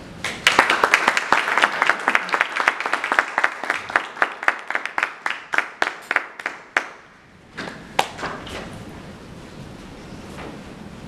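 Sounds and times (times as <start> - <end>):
audience applauding: 0.2 - 7.0.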